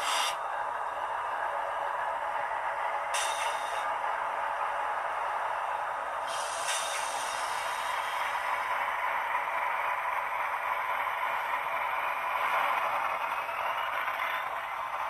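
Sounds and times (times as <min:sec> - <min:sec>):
short hisses: 0:00.0 - 0:00.4, 0:06.3 - 0:07.6
model locomotive diesel hum: 0:00.0 - 0:15.0.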